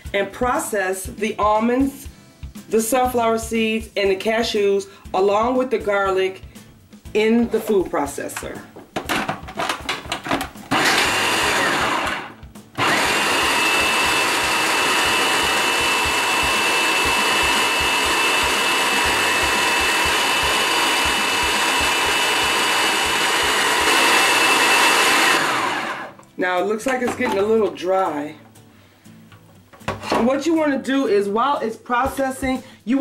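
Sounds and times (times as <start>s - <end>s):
food processor grinding nuts: 10.7s - 26.2s.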